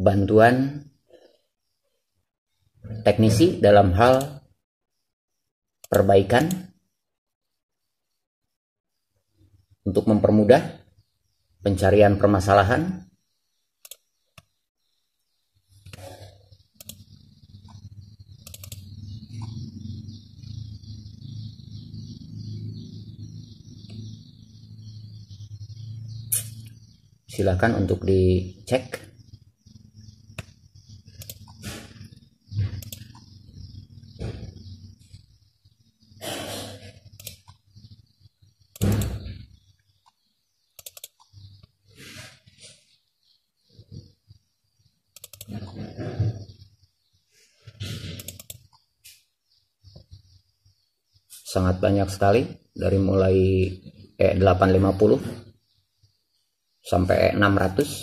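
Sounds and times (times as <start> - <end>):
mouse scroll wheel ticking: 13.8 - 14.5, 16.7 - 19.6, 30.0 - 32.2, 32.8 - 33.4, 37.1 - 37.6, 40.0 - 41.7, 45.1 - 45.8, 48.1 - 48.9
computer mouse clicking: 13.8 - 14.6, 15.8 - 16.1, 16.7 - 19.6, 30.0 - 33.4, 37.1 - 37.7, 38.7 - 39.3, 39.9 - 41.7, 45.1 - 45.8, 48.0 - 48.9.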